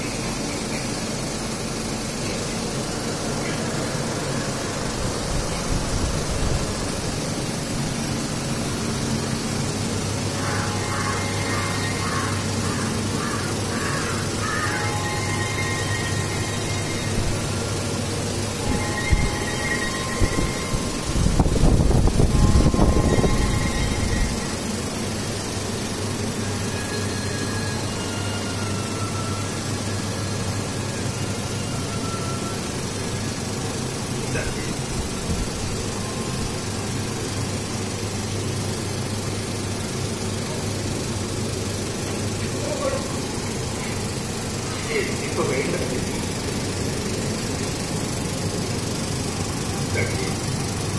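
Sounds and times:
low hum: 0.0 - 50.9
machinery hiss: 0.0 - 50.9.

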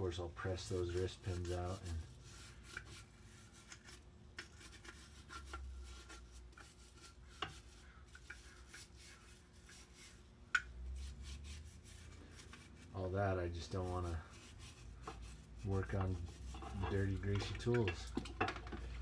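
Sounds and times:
brush scrubbing metal: 0.1 - 18.2
metal clinking against bucket: 15.8 - 19.0.

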